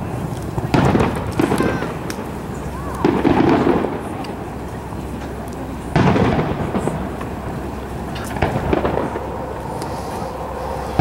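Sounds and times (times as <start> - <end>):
firework pops: 0.3 - 4.4, 5.2 - 7.4, 8.1 - 10.0
firework boom rumbling: 3.0 - 4.6, 5.9 - 11.0.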